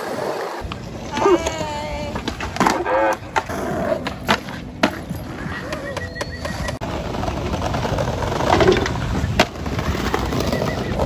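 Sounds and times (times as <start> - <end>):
skateboard clack: 0.0 - 11.0
skateboard wheels rolling on bricks: 0.0 - 11.0.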